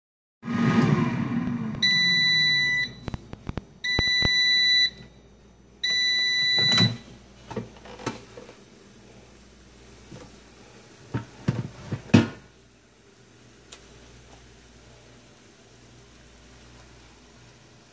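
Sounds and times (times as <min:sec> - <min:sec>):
fan humming: 0:00.5 - 0:17.9
air fryer alarm beeps: 0:01.8 - 0:03.2, 0:03.8 - 0:05.1, 0:05.8 - 0:07.2.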